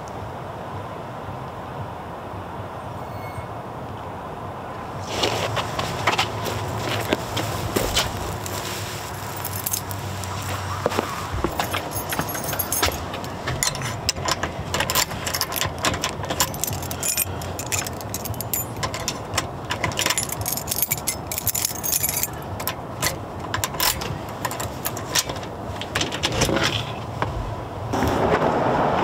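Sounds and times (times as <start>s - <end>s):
keys jangling at a lock: 9.2s - 10.2s, 11.4s - 26.4s.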